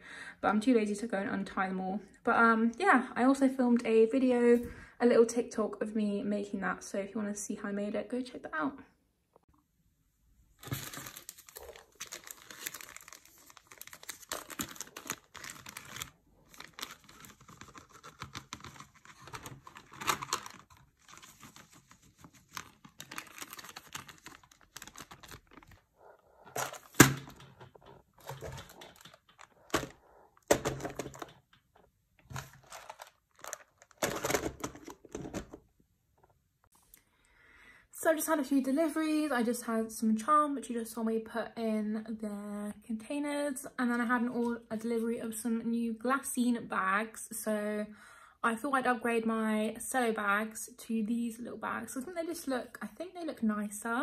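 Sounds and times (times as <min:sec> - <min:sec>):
plastic bags crinkling: 0:10.6 - 0:25.9, 0:26.5 - 0:35.6
charms clattering on plastic: 0:32.3 - 0:35.6.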